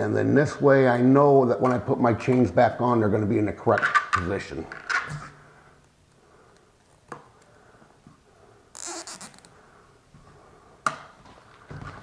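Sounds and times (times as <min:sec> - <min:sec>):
zip tie ratchet rasping: 0:08.7 - 0:09.5.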